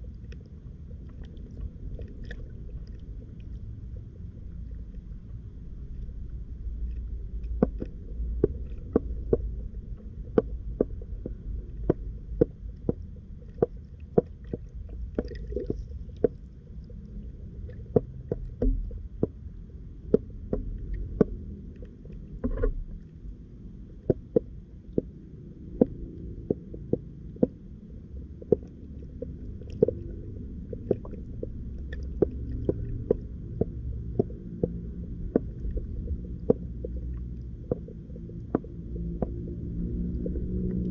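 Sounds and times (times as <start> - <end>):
underwater rumble of water: 0.0 - 40.9
sharp underwater clicks: 6.8 - 16.9, 20.0 - 23.3, 24.0 - 40.9.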